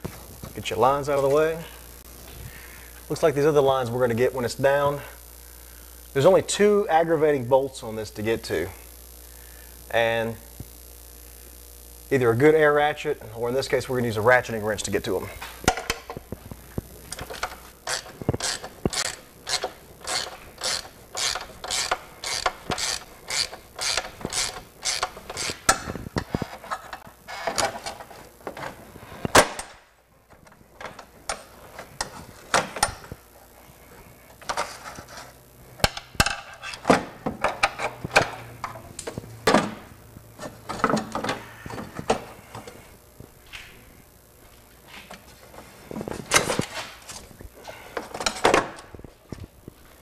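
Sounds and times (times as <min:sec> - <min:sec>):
ratchet wrench clicking: 0:17.8 - 0:25.8.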